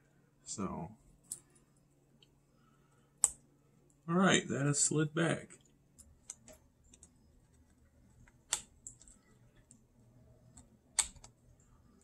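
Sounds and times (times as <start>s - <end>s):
small plastic clicks: 6.0s - 9.8s, 10.5s - 11.4s.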